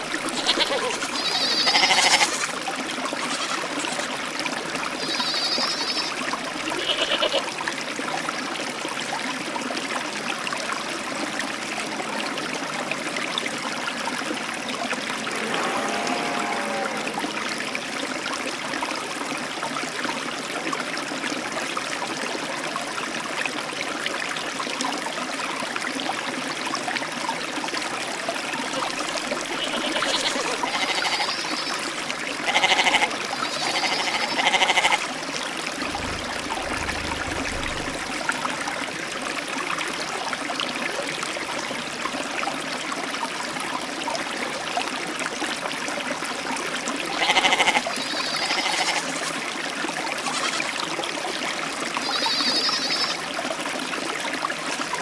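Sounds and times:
goat kid bleating: 0:00.2 - 0:02.5, 0:03.3 - 0:04.0, 0:05.0 - 0:06.1, 0:06.7 - 0:07.5, 0:29.5 - 0:31.4, 0:32.5 - 0:35.0, 0:47.1 - 0:49.1, 0:50.2 - 0:50.8
steady rushing noise: 0:35.9 - 0:38.4.

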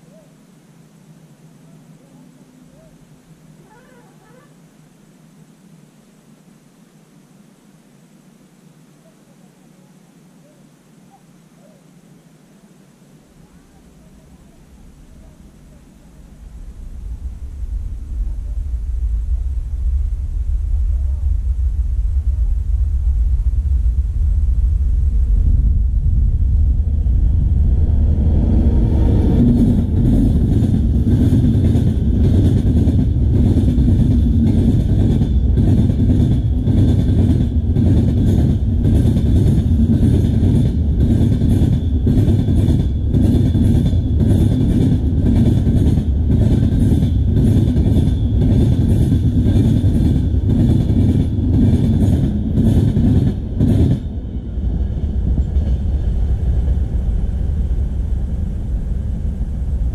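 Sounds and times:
train coaches rumbling: 0:25.0 - 0:59.9.

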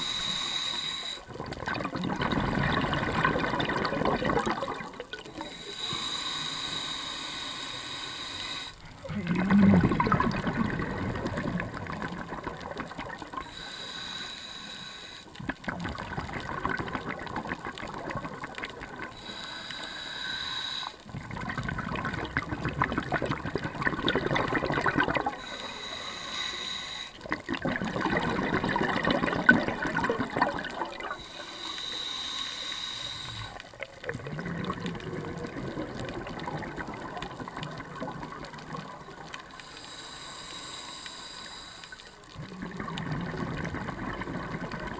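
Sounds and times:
regulator hissing inhale: 0:00.0 - 0:01.3, 0:05.4 - 0:09.0, 0:13.4 - 0:15.4, 0:19.1 - 0:21.1, 0:25.4 - 0:27.3, 0:31.1 - 0:33.7, 0:39.3 - 0:42.2
exhaust bubbles rushing: 0:01.4 - 0:05.0, 0:09.1 - 0:13.2, 0:21.2 - 0:25.4, 0:27.5 - 0:31.2, 0:42.5 - 0:44.9.

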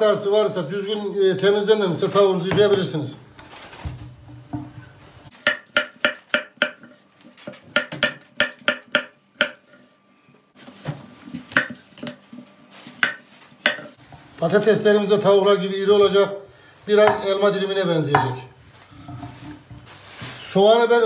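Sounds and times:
knife chopping on wooden board: 0:05.3 - 0:09.8, 0:10.8 - 0:12.2, 0:13.0 - 0:13.9, 0:17.0 - 0:17.3, 0:18.2 - 0:18.4.

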